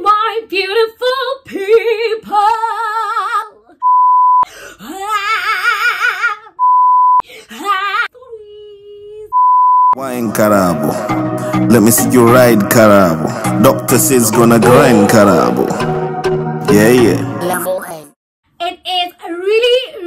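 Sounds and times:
woman singing with vibrato: 0.0s - 3.6s, 17.3s - 18.1s.

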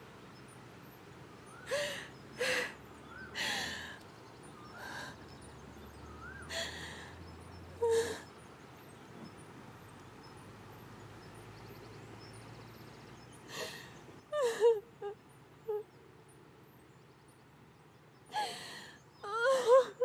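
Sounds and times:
woman sobbing and crying: 1.7s - 2.8s, 6.5s - 7.1s, 7.8s - 8.3s, 13.5s - 15.9s, 18.3s - 20.0s.

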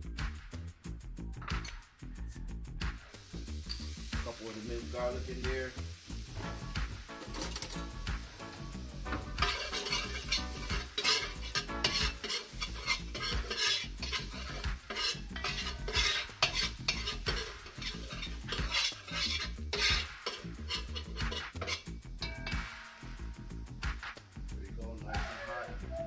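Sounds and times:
garlic sizzling in oil: 3.0s - 24.5s
spoon scraping metal pot: 7.2s - 22.6s.

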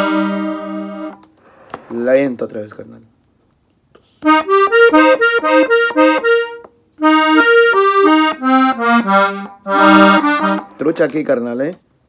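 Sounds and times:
button accordion run: 0.0s - 1.2s, 4.2s - 11.0s.

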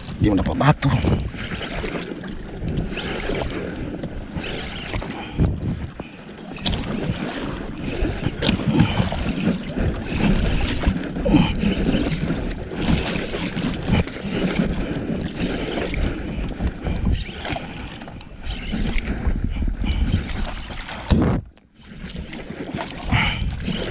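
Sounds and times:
water lapping against boat hull: 0.0s - 23.9s
wind rumbling on microphone: 0.0s - 23.9s.

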